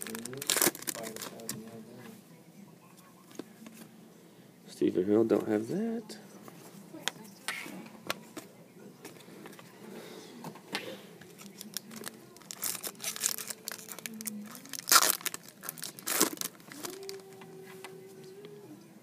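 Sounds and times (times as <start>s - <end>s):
foil wrapper crinkling: 0.0s - 1.6s, 11.4s - 17.4s
foil wrapper ripping: 0.0s - 1.6s, 11.4s - 17.3s.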